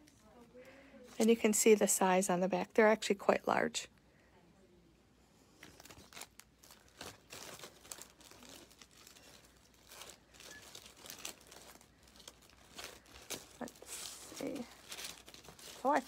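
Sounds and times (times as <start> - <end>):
packages rustling and clicking: 5.6 - 16.0.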